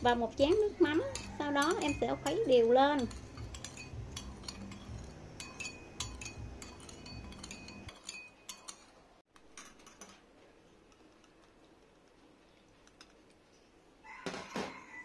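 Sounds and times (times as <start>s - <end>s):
spoon clinking in ceramic bowl: 0.1s - 10.1s.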